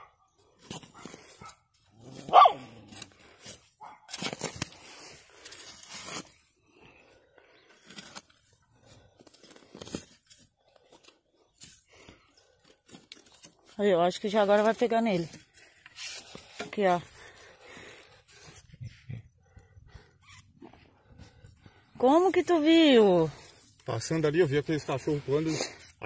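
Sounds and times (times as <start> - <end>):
soil scraping and rustling: 0.4 - 19.0, 20.6 - 26.0
dog barking: 2.3 - 2.7.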